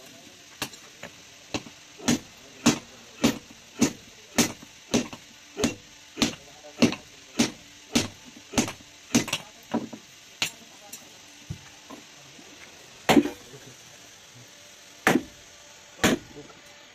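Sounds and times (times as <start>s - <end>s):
hammer striking iron on anvil: 1.5s - 9.5s, 15.0s - 15.3s, 16.0s - 16.3s.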